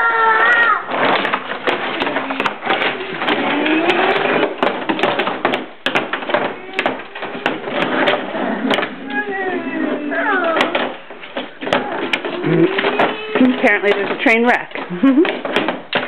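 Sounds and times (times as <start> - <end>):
toy trains clattering on plastic track: 0.9 - 16.0
child's voice: 9.0 - 10.8.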